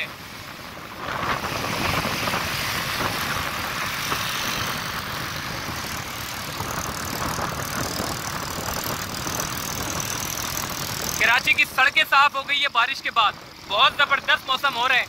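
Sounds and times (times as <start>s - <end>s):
road traffic with engines: 0.0s - 15.0s.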